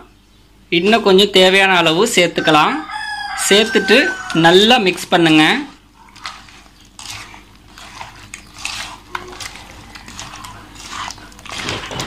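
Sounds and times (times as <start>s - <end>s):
hand squishing wet food: 3.3s - 12.0s
scraping against metal pot: 4.1s - 12.0s.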